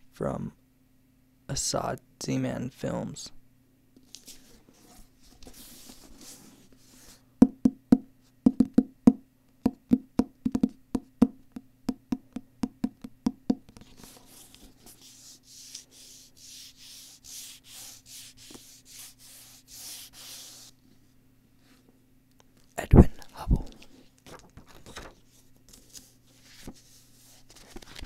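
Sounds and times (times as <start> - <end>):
fingers tapping on book cover: 7.4 - 14.0
fingertips scratching book cover: 13.7 - 20.8.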